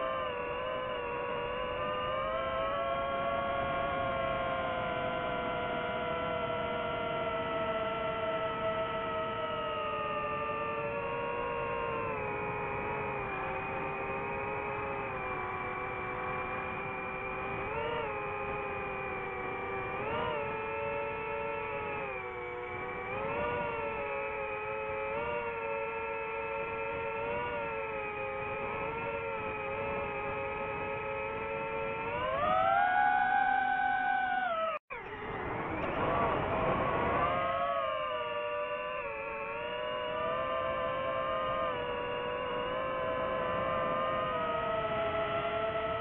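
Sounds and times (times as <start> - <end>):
quadcopter motors whining: 0.0 - 46.0.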